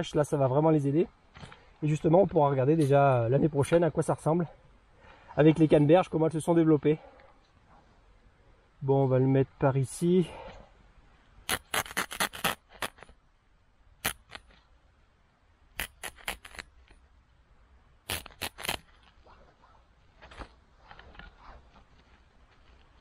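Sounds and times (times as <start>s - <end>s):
faint scratching: 18.1s - 23.0s.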